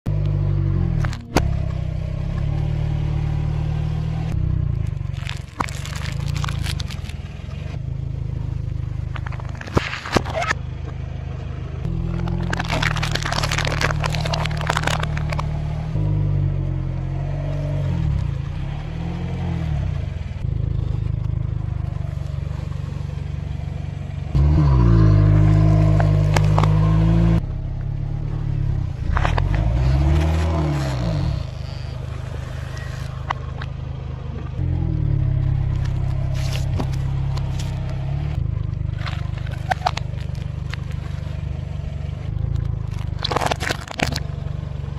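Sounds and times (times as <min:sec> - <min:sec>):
car engine revving: 0:00.1 - 0:44.9
plastic cups and bottles crunching: 0:05.0 - 0:07.2, 0:09.1 - 0:10.6, 0:11.9 - 0:15.5, 0:25.8 - 0:26.8, 0:29.1 - 0:33.7, 0:35.7 - 0:38.0, 0:38.9 - 0:41.4, 0:42.4 - 0:44.3.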